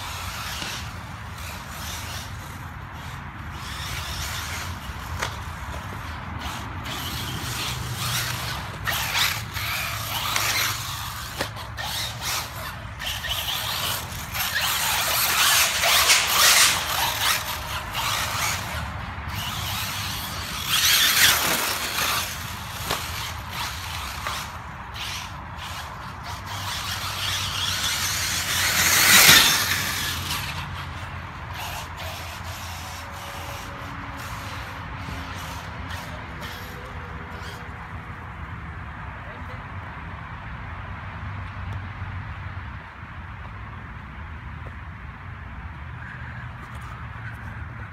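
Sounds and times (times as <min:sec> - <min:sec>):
rc car motor whining: 0:00.0 - 0:38.0.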